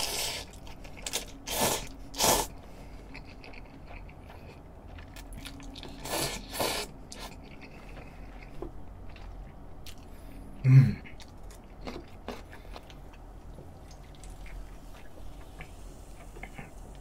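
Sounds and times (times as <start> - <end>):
chewing: 0.0 - 10.2, 11.1 - 17.0
person slurping noodles: 1.5 - 2.5.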